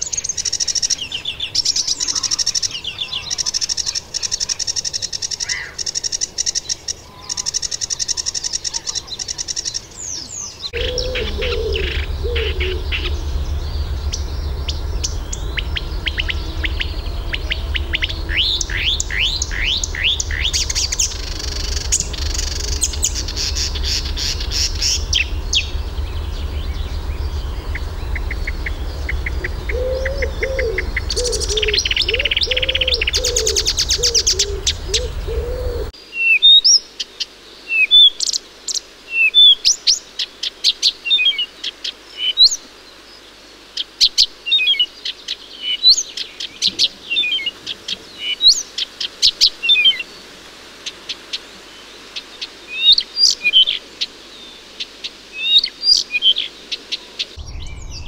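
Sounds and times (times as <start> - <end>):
warbler singing: 6.6 - 36.4, 57.4 - 58.0
lower repeated bird notes: 10.6 - 36.0, 57.4 - 58.0
steady low rumble: 10.8 - 35.9, 57.4 - 58.0.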